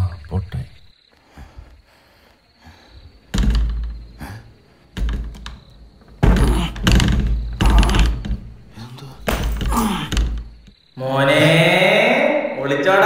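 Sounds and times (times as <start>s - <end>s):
heavy door thuds: 3.2s - 10.8s
door rattling against lock: 3.3s - 10.8s.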